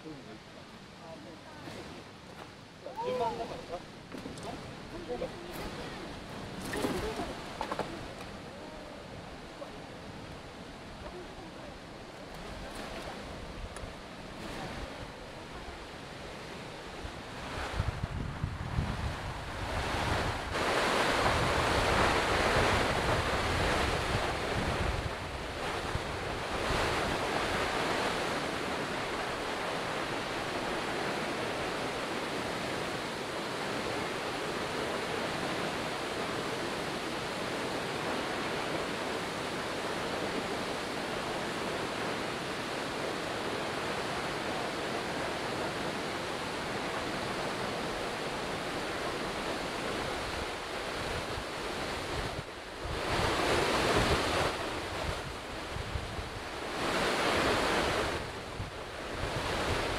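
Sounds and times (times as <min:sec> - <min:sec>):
waterfall rushing: 0:19.1 - 0:55.6.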